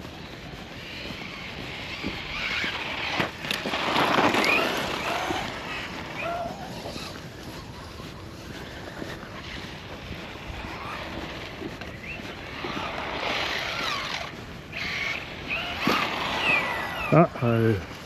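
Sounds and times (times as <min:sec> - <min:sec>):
electric rc truck motor whine: 0:00.8 - 0:07.2, 0:10.3 - 0:17.2.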